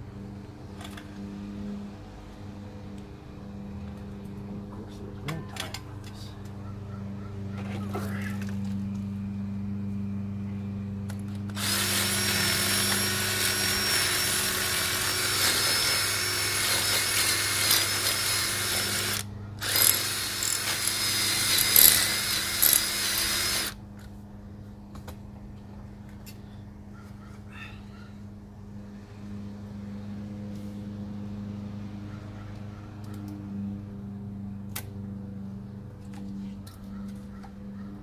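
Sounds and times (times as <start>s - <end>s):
cordless drill whining: 11.5s - 23.8s.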